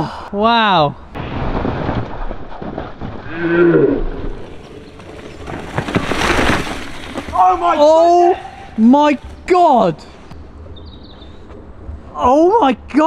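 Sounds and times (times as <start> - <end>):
loud scraping rush: 1.2 - 9.4
tyres grinding over rough trail: 1.2 - 10.4
bike rattling: 4.2 - 10.3.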